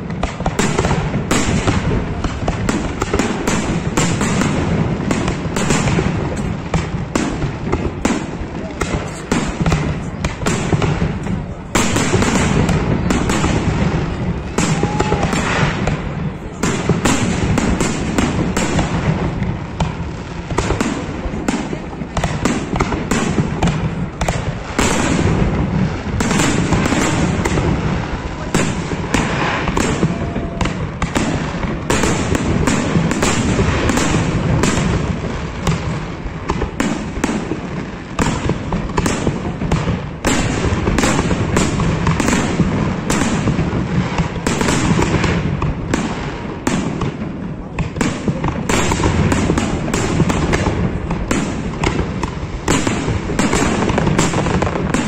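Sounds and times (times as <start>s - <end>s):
fireworks bursting: 0.0s - 55.0s.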